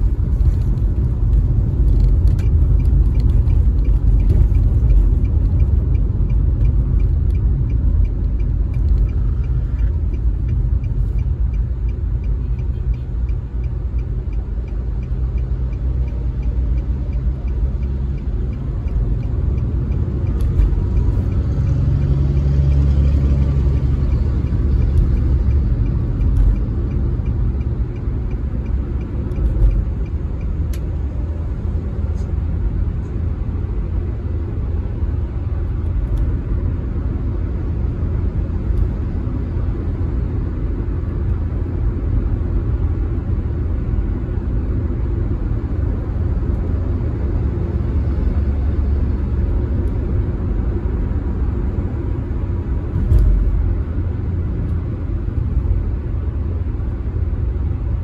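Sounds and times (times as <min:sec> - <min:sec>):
tyre and engine rumble: 0:00.0 - 0:34.6.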